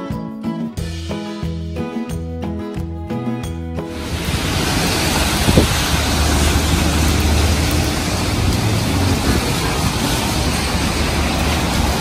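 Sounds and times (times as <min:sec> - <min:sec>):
roadside traffic: 0:03.9 - 0:12.0
wind rumbling on microphone: 0:04.0 - 0:12.0.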